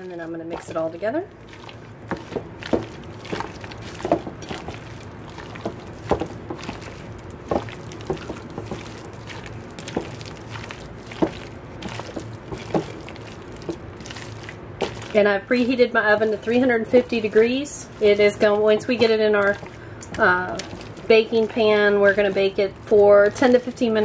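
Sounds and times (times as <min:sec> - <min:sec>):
hands squishing potato salad: 0:00.0 - 0:24.0.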